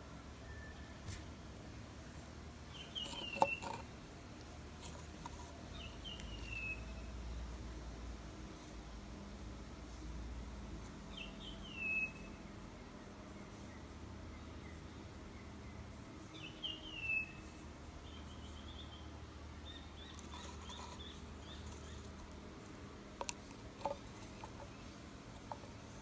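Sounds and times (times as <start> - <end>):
bird chirping: 2.7 - 3.8, 5.7 - 7.1, 11.1 - 12.4, 13.6 - 22.2
plastic cup set on wooden table: 2.9 - 3.9, 20.1 - 22.4, 23.2 - 26.0.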